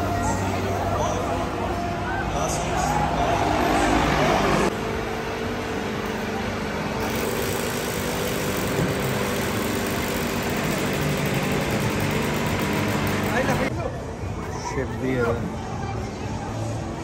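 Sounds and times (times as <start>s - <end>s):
motor hum: 4.7s - 13.7s.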